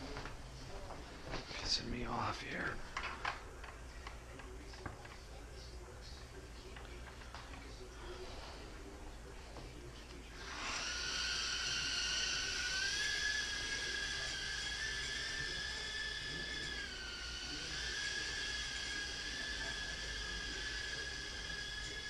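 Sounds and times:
mini drone motors whining: 10.4 - 22.0.

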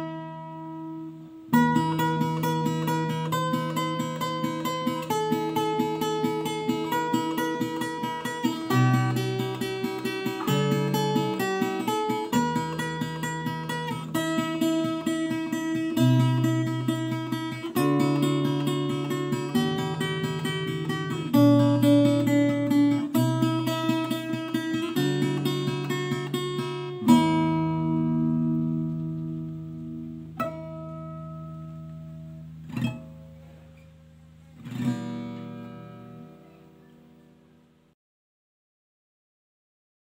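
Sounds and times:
fingerstyle acoustic guitar: 0.0 - 37.9.

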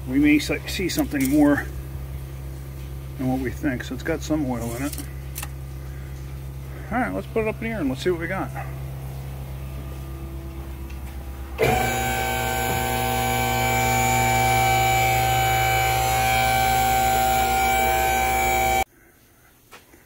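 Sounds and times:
low steady hum: 0.0 - 19.6
hydraulic pump motor whine: 9.5 - 18.9.

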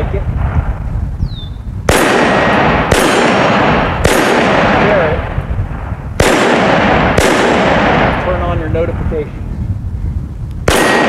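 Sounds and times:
pistol shots echoing: 1.9 - 5.4, 6.2 - 8.6, 10.7 - 11.0.

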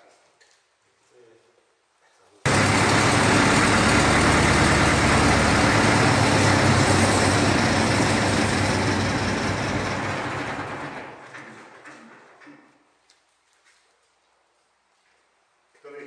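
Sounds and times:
diesel engine running: 2.5 - 11.9.

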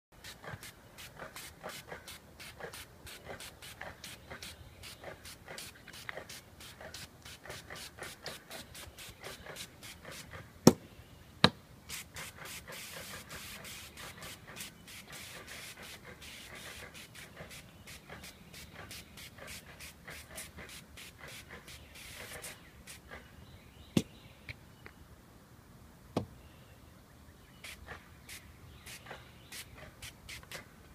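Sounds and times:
spray hiss: 11.9 - 23.0.

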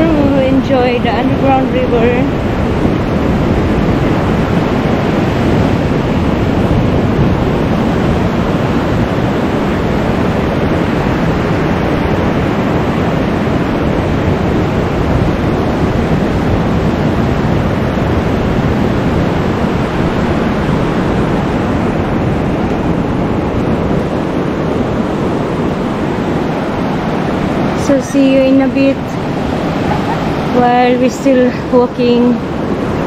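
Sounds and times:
waves breaking on beach: 0.0 - 33.0
wind buffeting microphone: 0.0 - 33.0.

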